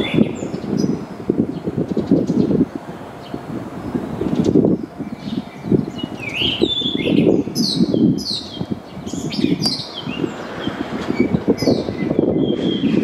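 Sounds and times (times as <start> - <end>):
bird singing whistled phrases: 5.1 - 10.3, 11.2 - 13.0.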